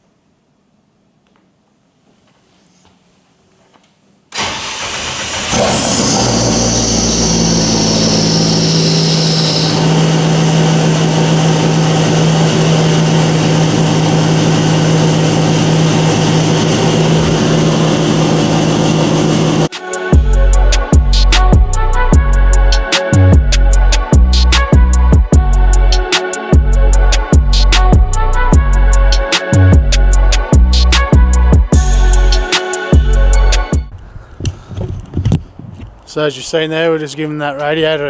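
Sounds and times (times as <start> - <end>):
car engine starting and idling: 4.3 - 19.7
high hiss: 6.2 - 10.6.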